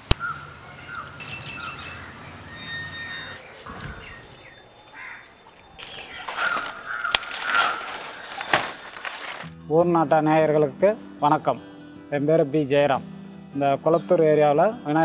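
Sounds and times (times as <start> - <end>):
birds chirping: 0.0 - 9.4
plastic and dry leaves rustling: 4.2 - 9.5.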